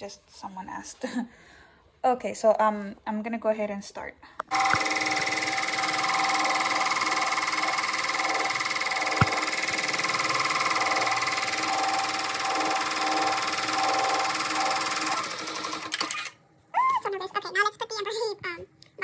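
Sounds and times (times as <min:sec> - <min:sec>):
embroidery machine stitching: 0:04.5 - 0:16.4.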